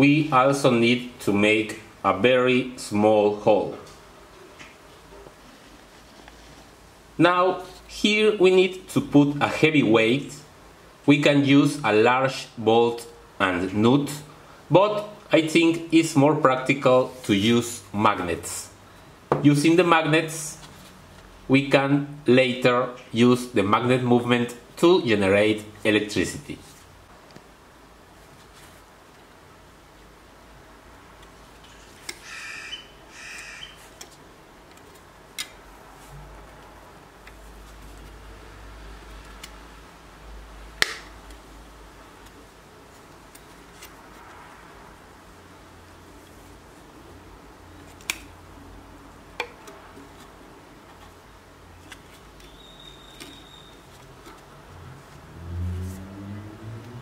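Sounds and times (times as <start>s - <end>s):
rubbing and handling noise: 4.4s - 8.0s, 19.3s - 21.4s, 24.8s - 29.5s, 33.8s - 38.4s, 41.3s - 44.7s, 49.0s - 56.1s.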